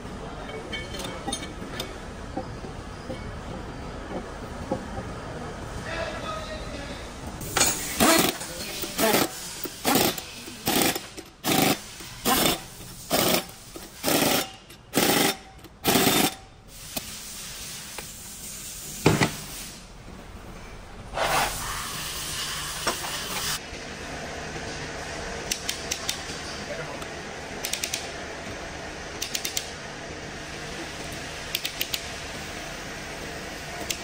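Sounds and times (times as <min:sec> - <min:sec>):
pneumatic impact wrench hammering: 0:07.4 - 0:17.2.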